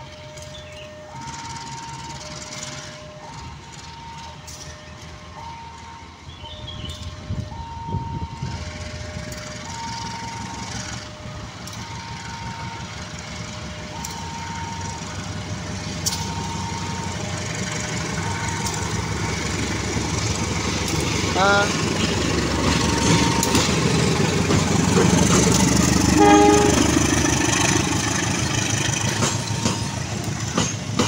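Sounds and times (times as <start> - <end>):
two-tone warning alarm: 0.0 - 19.9, 22.8 - 23.7, 26.1 - 27.1
locomotive engine hum: 0.0 - 31.0
sharp clacks: 30.5 - 31.0.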